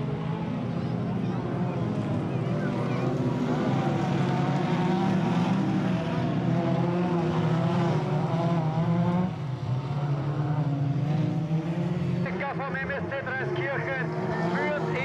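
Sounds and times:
race car engines revving: 0.0 - 15.0.

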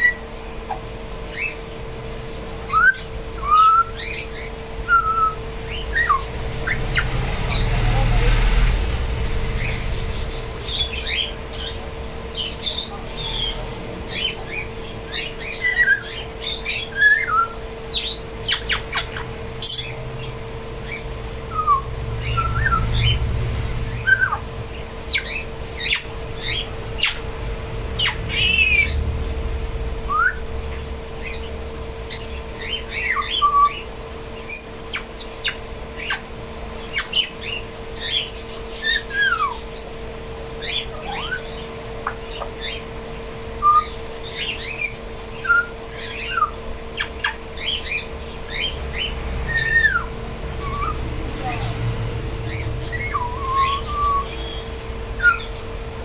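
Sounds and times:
parrot whistling: 0.0 - 0.3, 2.6 - 7.7, 12.4 - 19.9, 20.8 - 23.2, 23.9 - 27.3, 30.0 - 30.5, 32.1 - 33.9, 36.9 - 39.9, 40.6 - 42.9, 43.6 - 51.1, 52.5 - 55.6
parrot chirps: 2.6 - 7.8, 9.5 - 23.3, 23.9 - 27.3, 27.9 - 29.0, 30.0 - 30.5, 32.1 - 40.0, 40.6 - 42.9, 43.6 - 51.1, 52.4 - 55.6.

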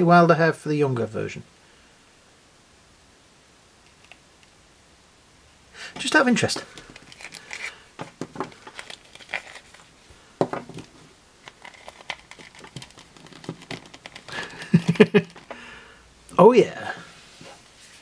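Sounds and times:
cape crinkling rustle: 6.0 - 10.1, 10.8 - 15.6.

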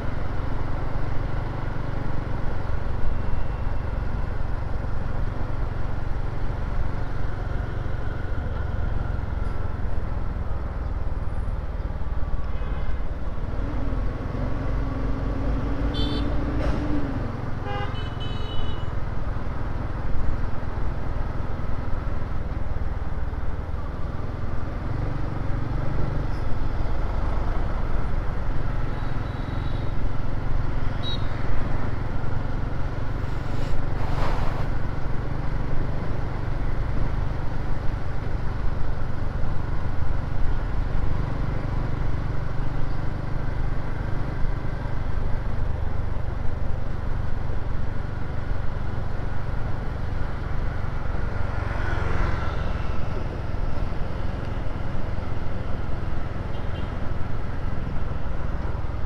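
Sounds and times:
city traffic: 0.0 - 59.0
short vehicle horn beeps: 31.0 - 31.4.

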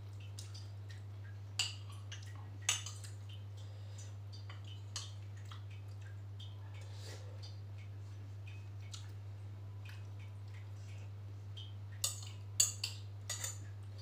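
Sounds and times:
steady low hum: 0.0 - 14.0
wet eating sounds: 0.0 - 14.0
metal spoon clinking on glass bowl: 12.0 - 13.6.

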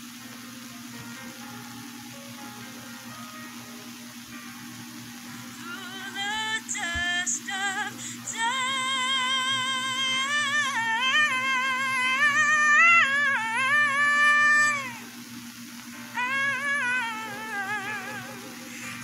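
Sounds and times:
woman singing solo: 5.6 - 15.1, 16.1 - 19.0.

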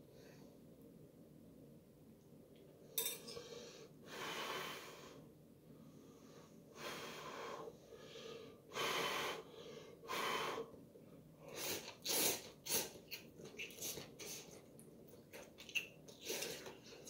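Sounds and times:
man slurping noodles: 11.5 - 13.0.

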